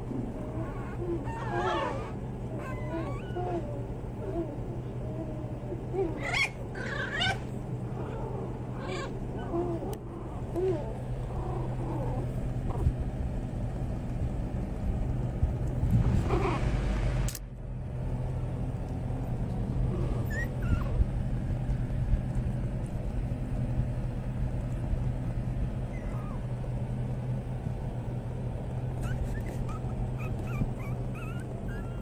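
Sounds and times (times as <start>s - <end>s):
puppies whimpering and squeaking: 0.0s - 12.9s, 19.9s - 21.1s, 25.8s - 26.6s, 28.9s - 32.0s
low hum: 0.0s - 32.0s.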